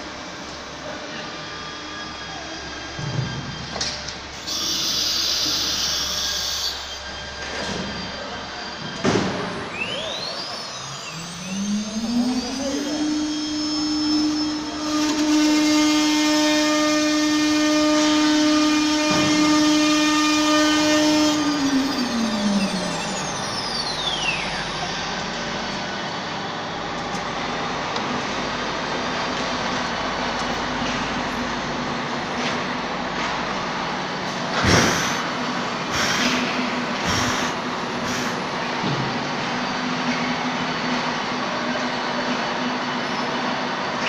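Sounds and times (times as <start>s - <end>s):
router spindle high whine: 0.0s - 44.0s
router spindle engraving wood: 4.4s - 7.0s, 34.6s - 35.2s, 37.0s - 38.4s
short loud rushes of noise: 34.3s - 39.2s.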